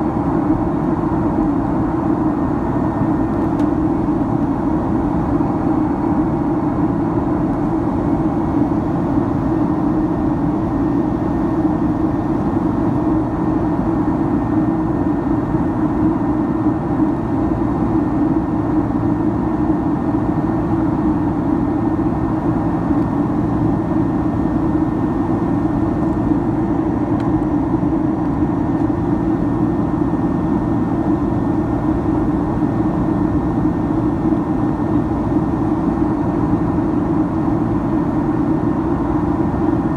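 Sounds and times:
faint steady whine: 0.0s - 39.9s
jet engines droning: 0.0s - 39.9s.

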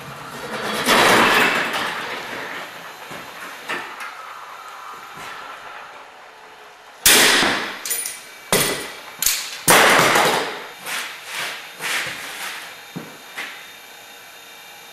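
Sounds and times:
metallic cracks and clanks: 7.1s - 10.5s.

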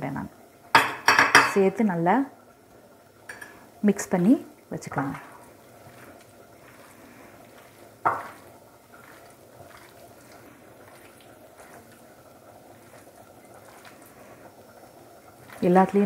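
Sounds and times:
hand mixing chicken in marinade: 4.8s - 16.0s.

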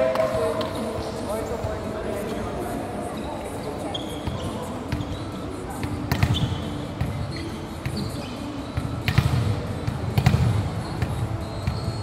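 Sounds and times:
volleyballs hit and smacking court: 8.8s - 11.9s.

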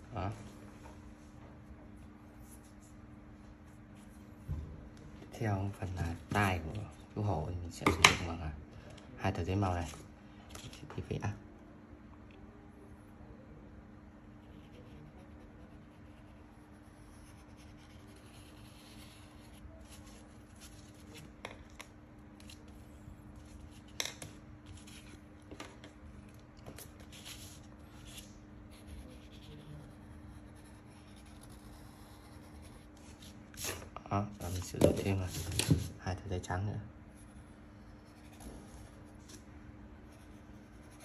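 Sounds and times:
low steady hum: 0.0s - 41.0s
marker scratching on paper: 14.4s - 21.3s, 26.8s - 33.8s.

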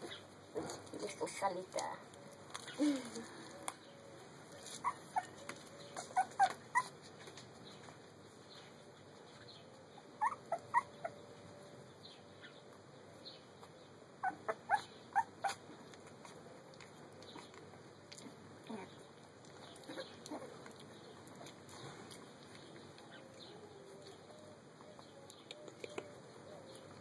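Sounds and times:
puppy whimpering: 4.6s - 7.0s, 10.1s - 11.3s, 14.2s - 17.5s, 19.8s - 20.7s.

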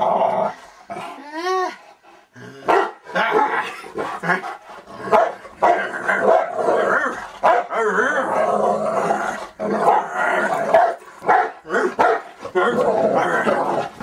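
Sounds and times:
dogs play-growling: 0.0s - 14.0s
dogs barking: 2.6s - 6.7s, 7.4s - 7.7s, 9.8s - 12.8s.

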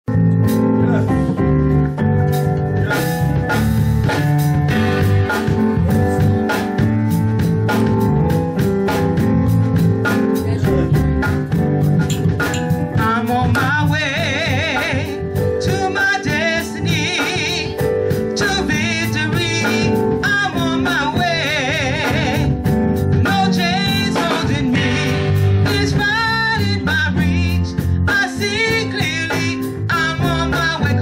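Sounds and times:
band with steady drum beat: 0.3s - 31.0s
gospel group singing: 13.1s - 17.8s, 23.2s - 31.0s.

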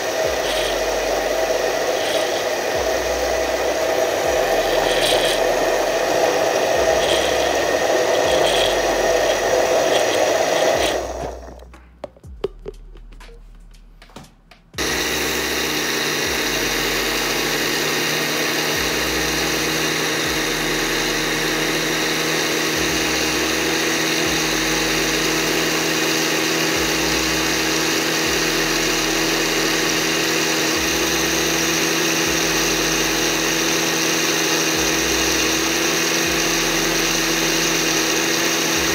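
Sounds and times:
blender motor running: 0.0s - 11.7s, 14.8s - 38.9s.

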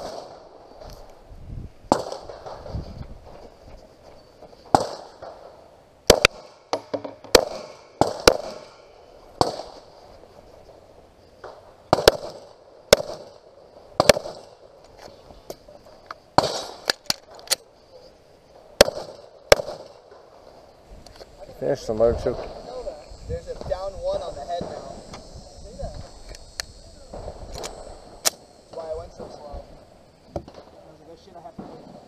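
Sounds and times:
pistol shots with echo: 0.0s - 0.6s, 1.9s - 2.6s, 4.7s - 5.5s, 6.1s - 9.9s, 11.4s - 13.4s, 14.0s - 14.6s, 16.4s - 17.5s, 18.8s - 20.2s.

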